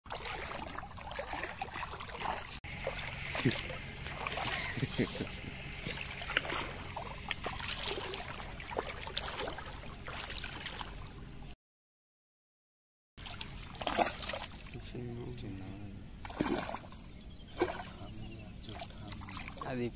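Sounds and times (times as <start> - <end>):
feet wading through water: 0.1 - 11.5, 13.2 - 14.8, 16.2 - 19.9.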